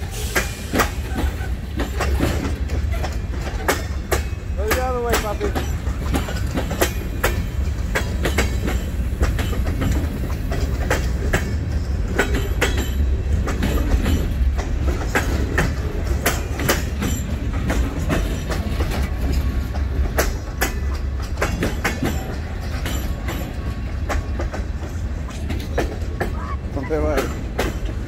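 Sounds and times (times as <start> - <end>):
low train rumble: 0.0 - 28.0
train wheels clacking over rail joints: 0.0 - 28.0.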